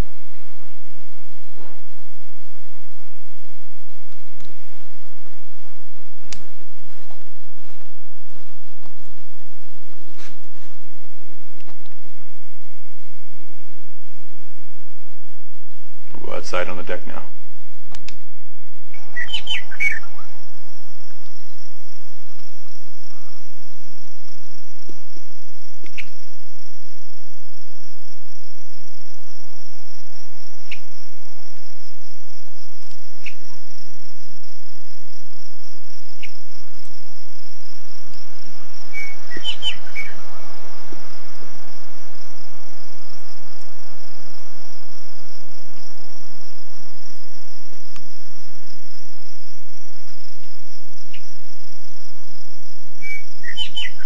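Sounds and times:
high-pitched insect drone: 0:18.9 - 0:54.0.

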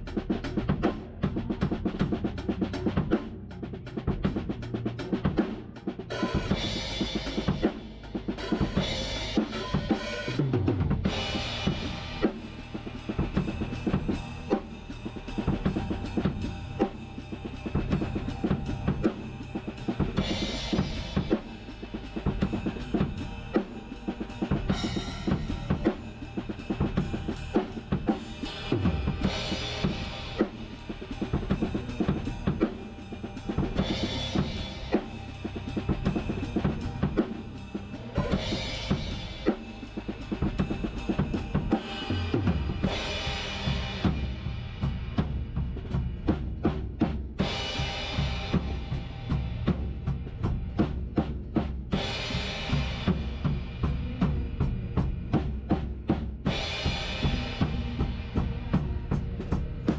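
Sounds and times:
drum kit groove: 0:00.0 - 0:59.9
cymbal crash: 0:06.3 - 0:45.1.

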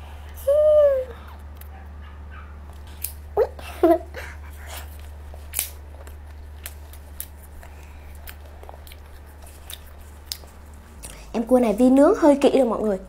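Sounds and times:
faint steady hum: 0:00.0 - 0:13.0
chewing: 0:01.2 - 0:11.4.

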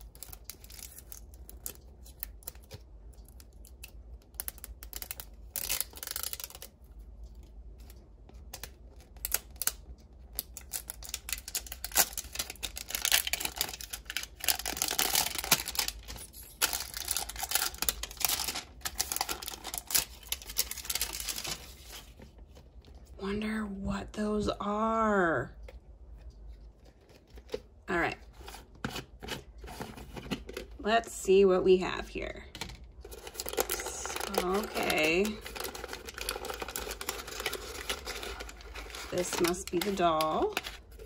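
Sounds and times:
wrapping crinkling and tearing: 0:00.0 - 0:23.2, 0:33.0 - 0:41.0.

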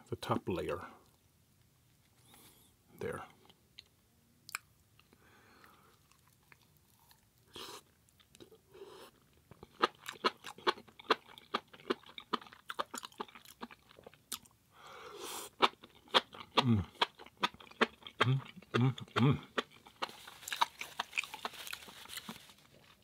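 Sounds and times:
person chewing crunchy food: 0:04.5 - 0:14.6, 0:15.2 - 0:23.0.

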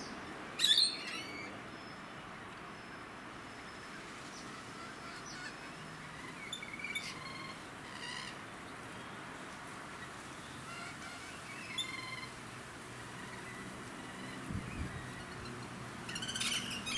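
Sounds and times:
steady background hiss: 0:00.0 - 0:16.9
lorikeets giving short high calls: 0:10.7 - 0:12.3, 0:13.2 - 0:16.9.

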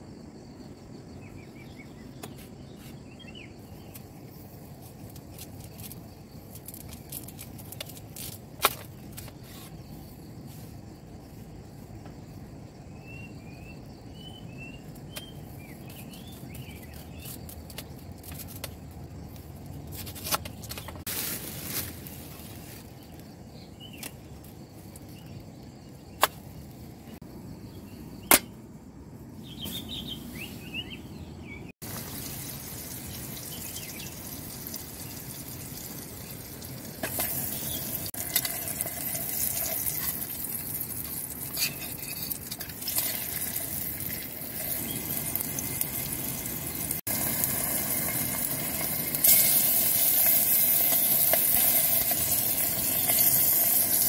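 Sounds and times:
birds chirping: 0:29.4 - 0:38.1
gas stove hissing: 0:31.9 - 0:54.0.

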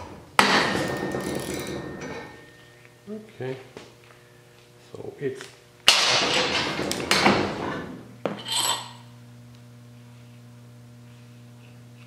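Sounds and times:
low hum: 0:00.0 - 0:04.9
steel tools clanking together: 0:00.5 - 0:02.5, 0:08.4 - 0:09.0.

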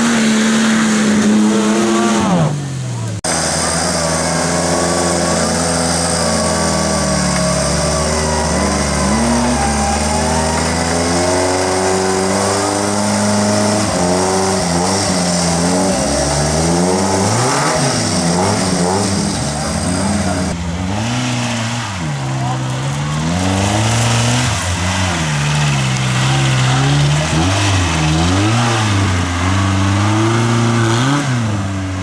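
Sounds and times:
off-road vehicle engine revving: 0:00.0 - 0:32.0.

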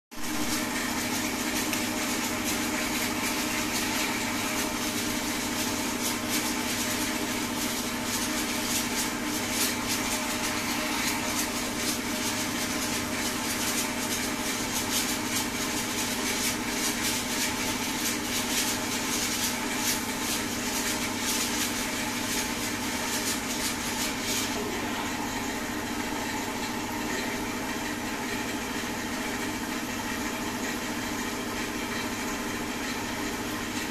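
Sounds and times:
pressure-washer pump humming: 0:00.2 - 0:33.9
spray hissing on car: 0:00.3 - 0:24.6.

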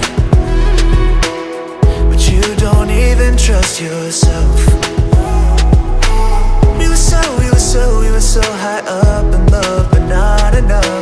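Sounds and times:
deep sliding bass notes: 0:00.0 - 0:03.6, 0:04.3 - 0:08.4
drum beat: 0:00.0 - 0:07.8, 0:08.4 - 0:11.0.

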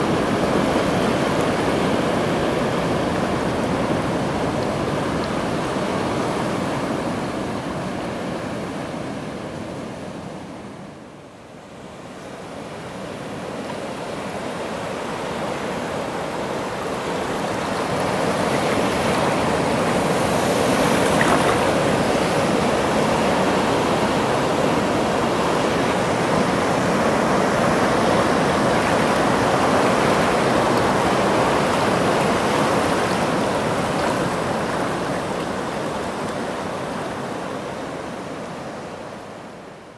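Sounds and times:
surf breaking on rocky shore: 0:15.1 - 0:37.4.

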